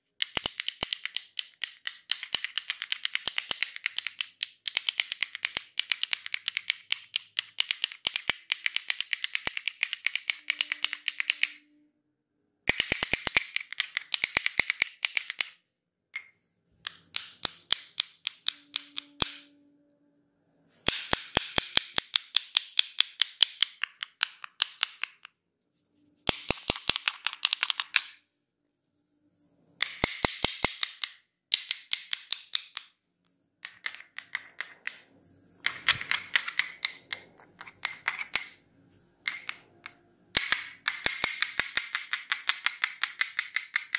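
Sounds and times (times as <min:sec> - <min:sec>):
wooden sticks clicking rapidly: 0:00.2 - 0:11.6, 0:12.7 - 0:15.6, 0:16.8 - 0:19.5, 0:26.3 - 0:28.1, 0:35.6 - 0:38.6, 0:39.2 - 0:43.9.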